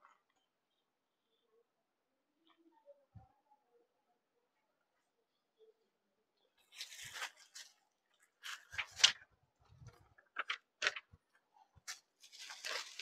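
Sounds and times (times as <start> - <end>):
cloth rustling: 6.6 - 11.2, 11.8 - 13.0.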